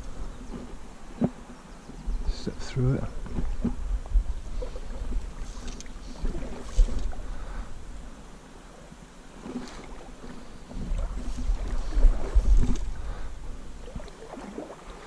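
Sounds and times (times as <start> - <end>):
low rumble on microphone: 0.0 - 8.2, 10.5 - 14.6
water sloshing around waders: 4.5 - 7.5, 9.3 - 15.0.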